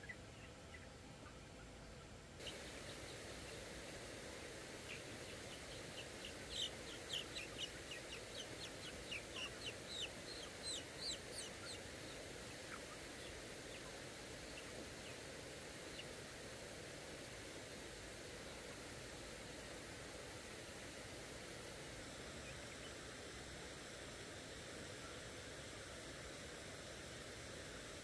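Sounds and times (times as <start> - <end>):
steady background hiss: 0.0 - 28.0
chicks peeping: 2.4 - 16.2.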